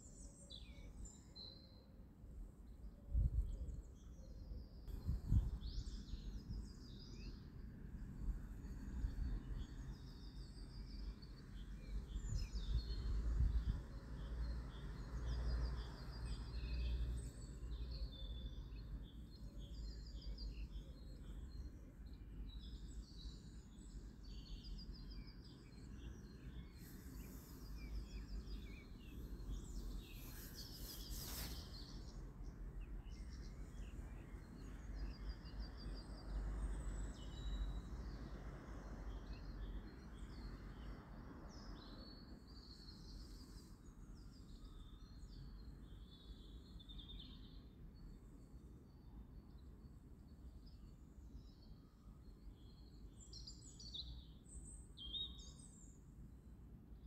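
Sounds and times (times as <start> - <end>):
small birds chirping and singing: 0.0 - 56.2
low steady background rumble: 2.4 - 42.4
rustling hiss: 30.0 - 32.1.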